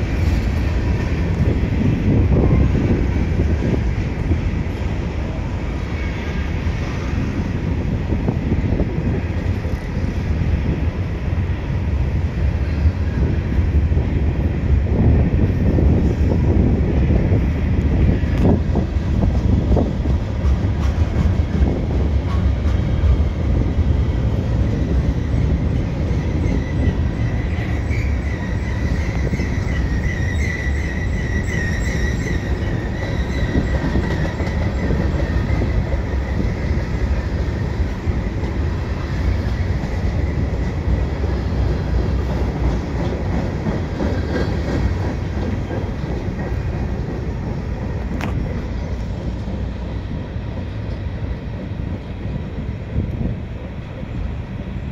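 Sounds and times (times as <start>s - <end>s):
freight train wheels rumbling: 0.0s - 54.9s
high wavering wheel squeal: 25.3s - 37.1s.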